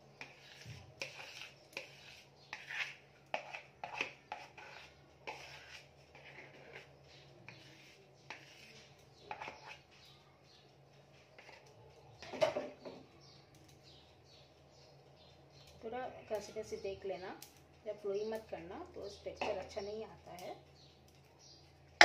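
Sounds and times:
spatula scraping a bowl: 0:00.0 - 0:13.0.

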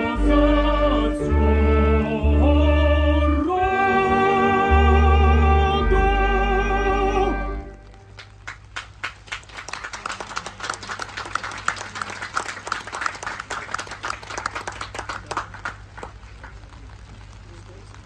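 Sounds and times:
audience applauding: 0:07.9 - 0:17.5.

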